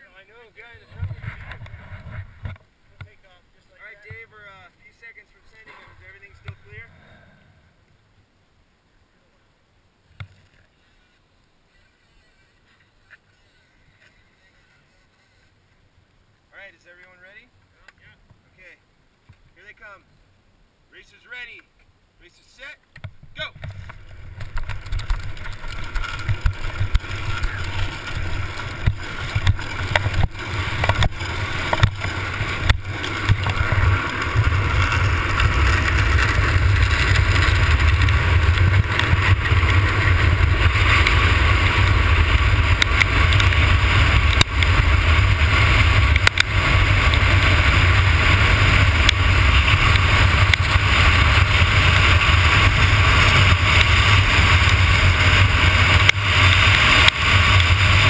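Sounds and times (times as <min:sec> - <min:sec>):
wheels rolling on asphalt: 0:00.0 - 0:08.0, 0:10.1 - 0:16.1, 0:23.0 - 0:58.0
wind rushing over microphone: 0:00.6 - 0:02.6, 0:23.3 - 0:58.0.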